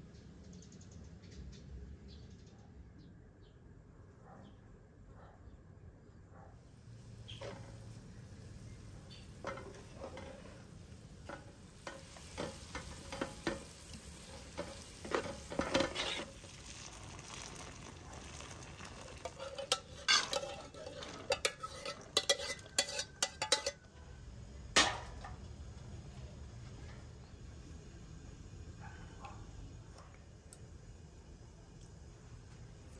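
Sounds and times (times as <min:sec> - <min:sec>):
metal pans and spoon clinking: 0:07.3 - 0:17.5, 0:18.2 - 0:24.0, 0:24.8 - 0:25.4
pot set down on stove: 0:11.2 - 0:16.4, 0:24.8 - 0:25.4
liquid being poured: 0:15.6 - 0:22.3.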